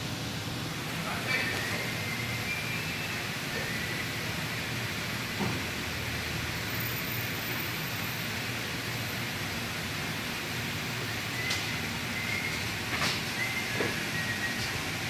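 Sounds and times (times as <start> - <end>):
hissing workshop background noise: 0.0 - 15.0.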